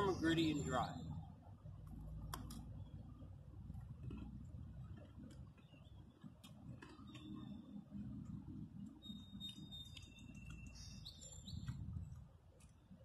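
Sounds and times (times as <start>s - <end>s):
short high bird chirps: 9.0s - 11.7s.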